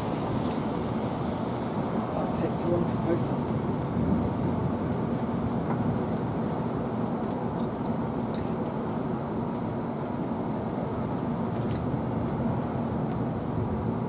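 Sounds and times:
low rumbling noise: 0.0 - 14.0.

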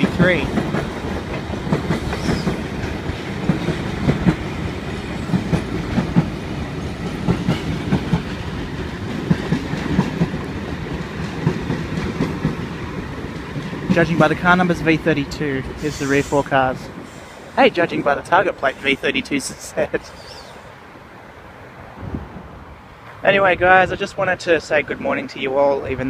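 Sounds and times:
wheels clacking over rail joints: 0.0 - 16.0
train rumbling past: 0.0 - 26.0.

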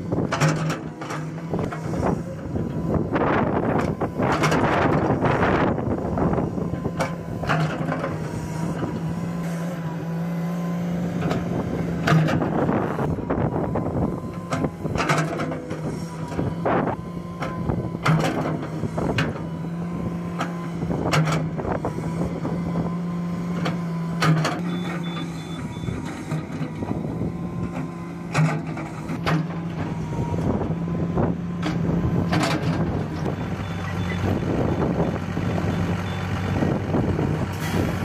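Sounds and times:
excavator diesel engine running: 0.0 - 38.0
rapid warning alarm beeps: 24.6 - 26.0, 33.4 - 34.3.

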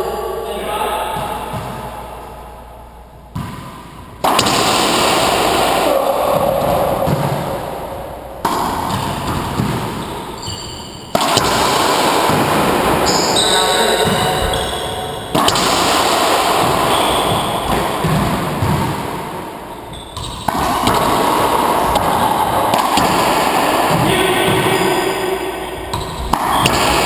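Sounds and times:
racquetballs smacking walls: 1.1 - 2.4, 3.3 - 27.0
shoe squeaks on court: 9.9 - 11.1, 19.9 - 20.6.

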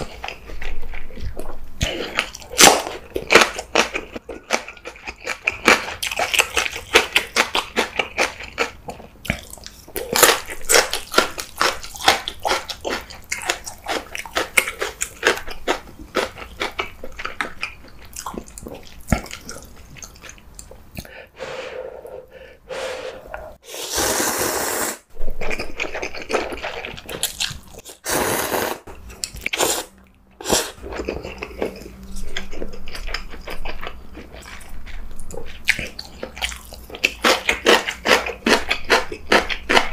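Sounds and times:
crunchy chewing: 0.0 - 21.1, 25.4 - 39.9
slurping noodles: 22.7 - 25.0, 27.9 - 28.9.

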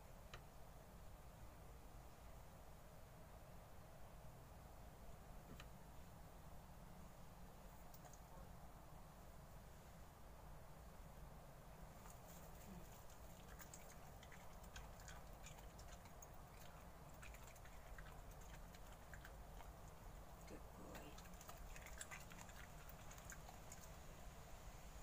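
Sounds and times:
dog chewing leaves: 12.0 - 24.0.

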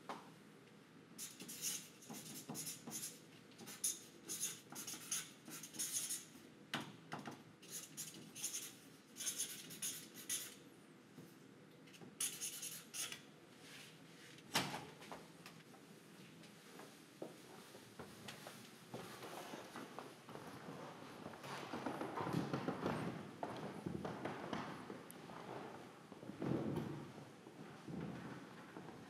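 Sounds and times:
marker pen scratching on paper: 1.2 - 6.3, 7.6 - 10.6, 12.2 - 13.2.

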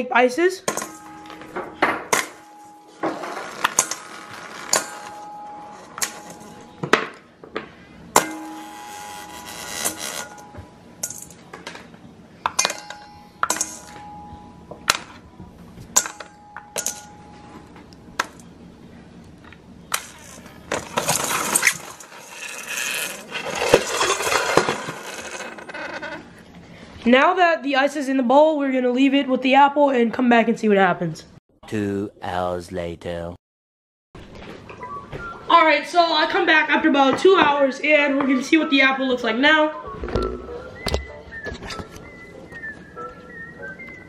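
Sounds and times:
dry ice clinking in metal bowl: 20.0 - 26.1
bowl scraping and handling: 20.2 - 26.4.

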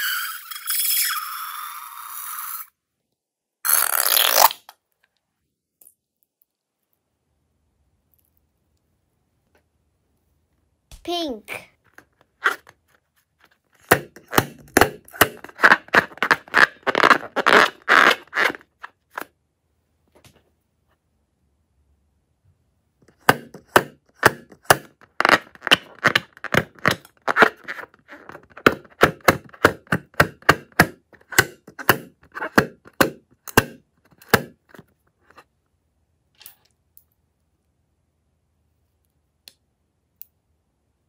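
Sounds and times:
balloon squeaking and creaking: 0.0 - 2.7, 3.7 - 4.7, 13.8 - 19.3, 24.5 - 30.5, 31.2 - 33.0.

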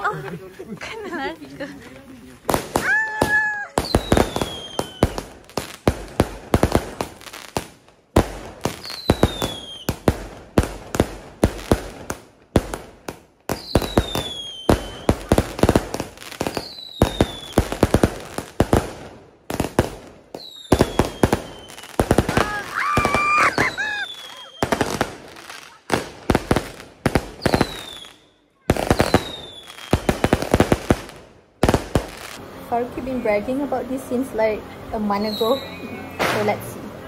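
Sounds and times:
fireworks bangs and crackles: 1.1 - 35.6, 36.2 - 36.8
falling firework whistle: 2.8 - 5.3, 8.8 - 10.0, 13.6 - 15.3, 16.5 - 17.7, 20.4 - 25.8, 27.4 - 30.6.

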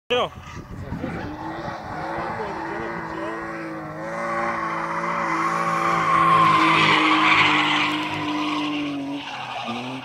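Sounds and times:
car engine: 0.1 - 10.0
tyres squealing on concrete: 4.5 - 10.0.

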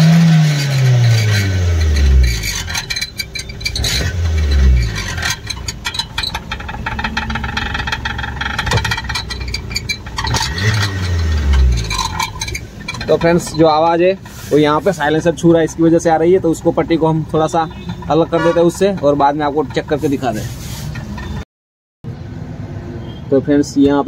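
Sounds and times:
car engine revving: 0.0 - 13.6
exhaust rattle: 0.0 - 21.4.

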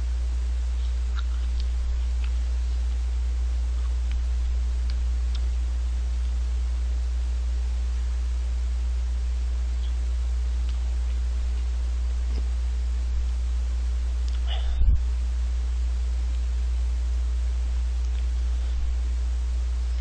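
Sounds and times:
constant hiss: 0.0 - 20.0
low electrical hum: 0.0 - 20.0.

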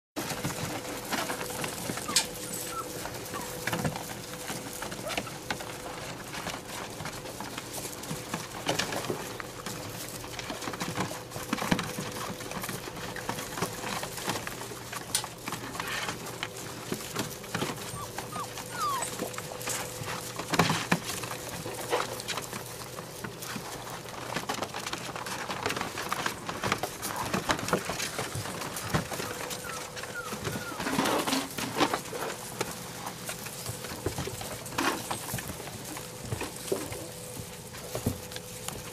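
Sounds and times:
knocks and rustles: 0.2 - 38.9
puppy squeaks and whimpers: 2.0 - 3.6, 17.8 - 19.4, 29.5 - 31.0.

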